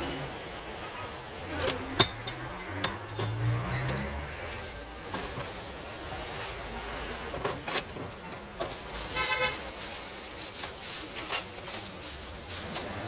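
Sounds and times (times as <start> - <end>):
clicks and knocks of parts: 1.5 - 4.2, 7.3 - 9.1
plastic bag rustling: 5.0 - 13.0.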